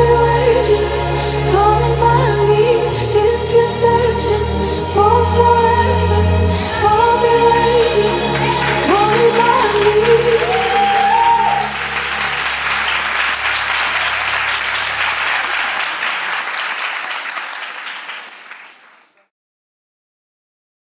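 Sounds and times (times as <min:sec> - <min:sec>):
audience applauding: 0:07.9 - 0:19.3.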